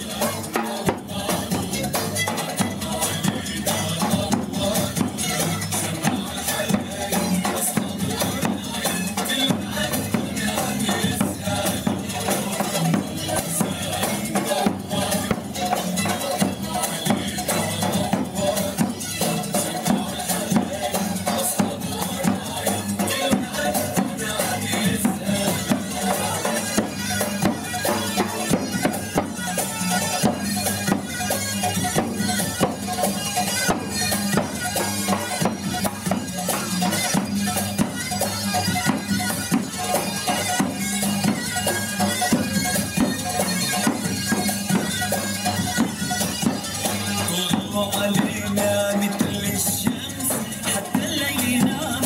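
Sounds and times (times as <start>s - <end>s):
fast drum beats: 0.0s - 52.0s
shawm playing nasal melody: 0.0s - 52.0s.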